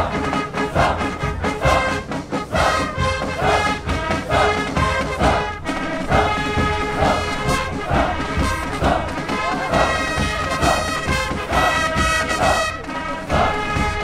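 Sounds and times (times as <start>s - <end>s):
brass horns playing marching tune: 0.0s - 14.0s.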